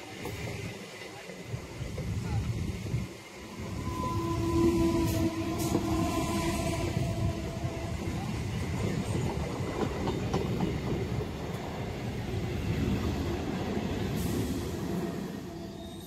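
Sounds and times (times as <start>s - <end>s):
train wheels rumbling on rails: 0.0s - 16.0s
wheels clacking over rail joints: 7.2s - 12.2s.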